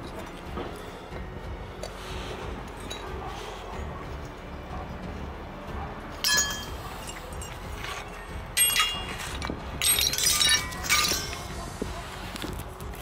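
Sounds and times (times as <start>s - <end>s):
metal scrap clinking onto pile: 6.2s - 11.5s.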